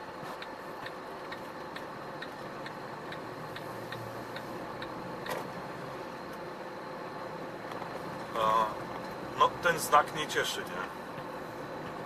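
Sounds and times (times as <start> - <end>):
truck cab running noise: 0.0 - 12.0
turn signal ticking: 0.0 - 12.0.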